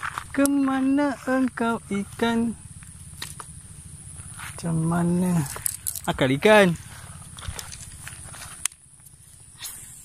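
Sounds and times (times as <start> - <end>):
fishing rod handling noise: 5.4 - 6.1.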